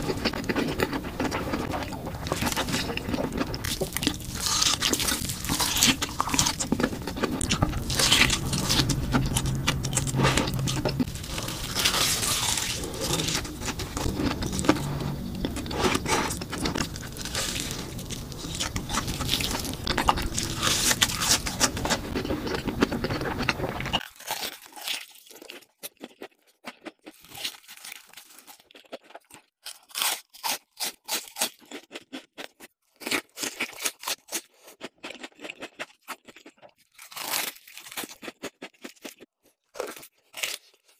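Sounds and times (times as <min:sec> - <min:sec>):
low background hum: 0:00.0 - 0:24.0
crunching and chewing food: 0:00.0 - 0:40.9.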